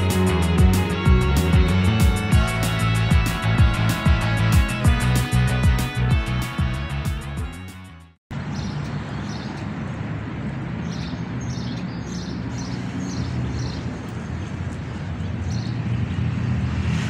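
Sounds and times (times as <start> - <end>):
traffic rumble: 8.3 - 17.0
bird chirping: 8.4 - 10.0, 10.8 - 15.9.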